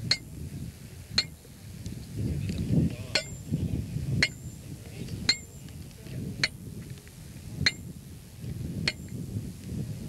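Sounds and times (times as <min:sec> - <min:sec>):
sledgehammer clinking on metal stake: 0:00.0 - 0:00.3, 0:01.2 - 0:01.4, 0:03.1 - 0:03.5, 0:04.2 - 0:04.6, 0:05.2 - 0:05.6, 0:07.6 - 0:07.9, 0:08.9 - 0:09.2.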